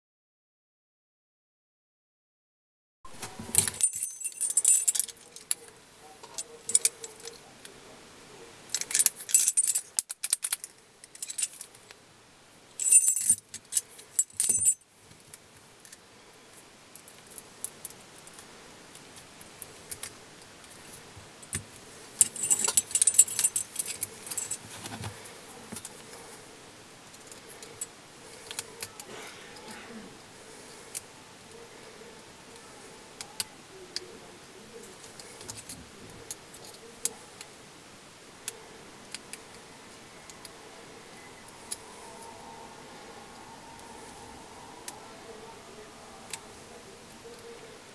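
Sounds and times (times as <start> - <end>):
keys jangling against padlock: 3.6 - 5.6, 6.3 - 7.4, 8.7 - 11.7, 12.8 - 14.8, 22.2 - 24.8.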